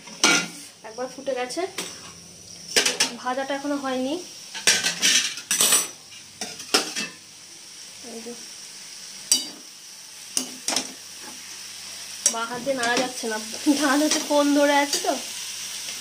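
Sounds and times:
vegetables sizzling in oil: 0:00.0 - 0:16.0
spatula scraping a pan: 0:04.6 - 0:07.2.

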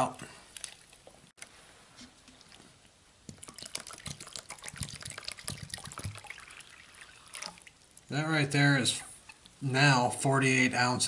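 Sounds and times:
water pouring: 0:00.5 - 0:01.2, 0:02.0 - 0:08.2
hand squishing wet slime: 0:02.0 - 0:08.1.

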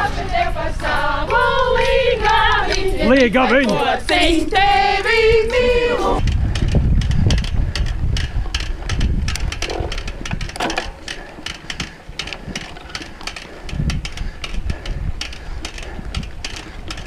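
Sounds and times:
wind: 0:00.0 - 0:17.0
bike parts clicking and knocking: 0:06.2 - 0:17.0
tyres rumbling on dirt: 0:06.2 - 0:17.0.

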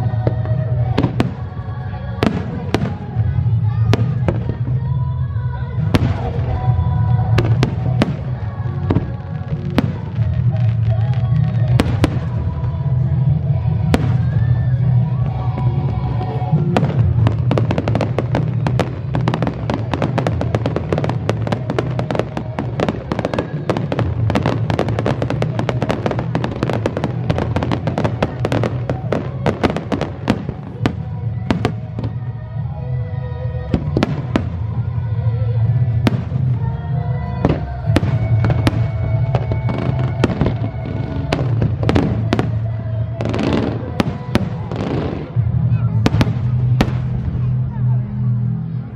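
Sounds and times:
music playing: 0:00.0 - 0:48.9
fireworks bangs: 0:05.8 - 0:12.8, 0:13.7 - 0:32.2, 0:37.4 - 0:47.7
crackling firework bursts: 0:05.8 - 0:32.3.

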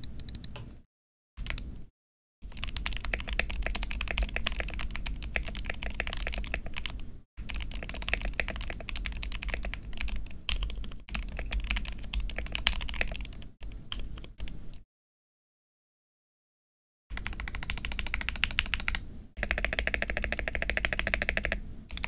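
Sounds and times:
fast typing on mechanical keyboard: 0:02.4 - 0:14.6, 0:17.1 - 0:22.0.

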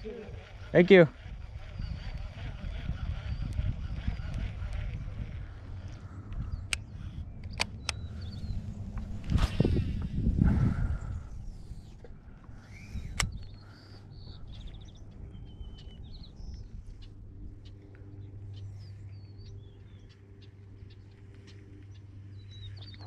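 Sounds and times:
small birds chirping: 0:00.0 - 0:23.0
steady low hum: 0:00.0 - 0:23.0.

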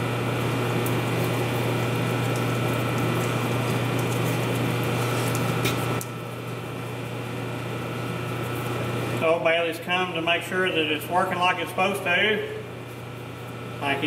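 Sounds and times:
coolant pump hum: 0:00.0 - 0:14.0
coolant splashing: 0:00.5 - 0:09.3.

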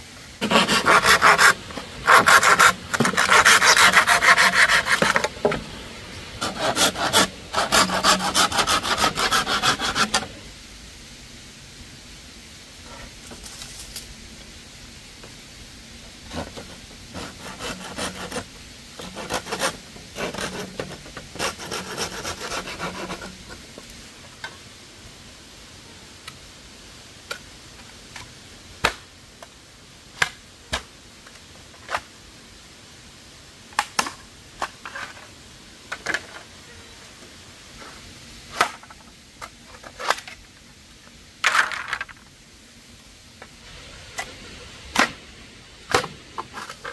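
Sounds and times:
rubbing and scraping: 0:00.4 - 0:05.7, 0:06.3 - 0:10.4, 0:16.2 - 0:23.9, 0:45.9 - 0:46.9.

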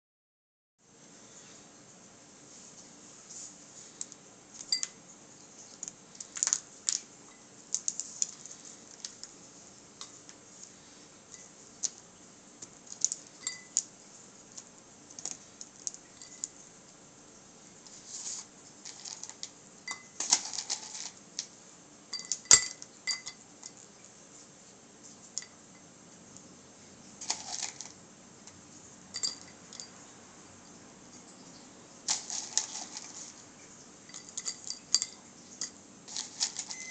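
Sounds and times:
wax pieces clicking on glass: 0:05.7 - 0:07.1, 0:07.7 - 0:09.3, 0:12.6 - 0:13.9, 0:14.5 - 0:16.6, 0:18.9 - 0:21.5, 0:32.1 - 0:33.3, 0:34.1 - 0:36.8.

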